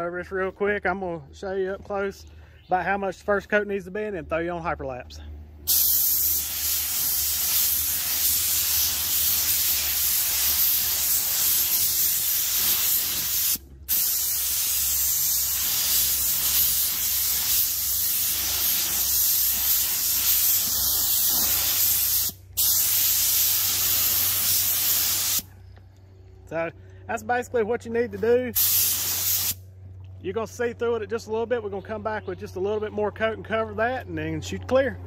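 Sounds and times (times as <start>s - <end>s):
paint spray gun hissing: 5.7s - 25.5s, 28.6s - 29.6s.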